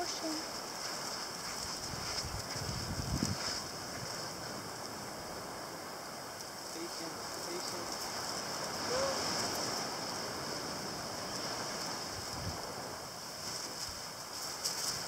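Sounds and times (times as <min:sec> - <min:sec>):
constant high hiss: 0:00.0 - 0:15.0
wind: 0:00.0 - 0:15.0
ocean surf: 0:03.4 - 0:15.0.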